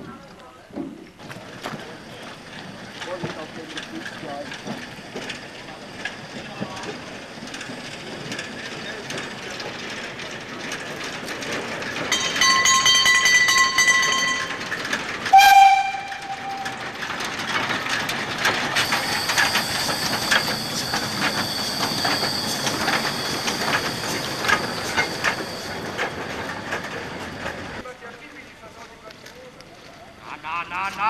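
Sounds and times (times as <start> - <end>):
wheels clicking over rail joints: 0.0 - 31.0
steam train whistle: 15.3 - 16.9
steady high-pitched tone: 18.8 - 26.8.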